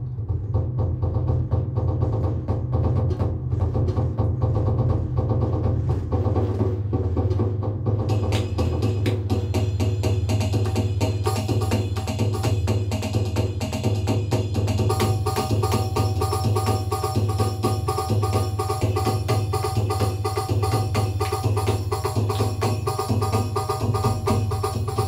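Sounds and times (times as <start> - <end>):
electronic hand percussion strokes: 8.0 - 25.0
repeating pitched pattern: 14.8 - 25.0.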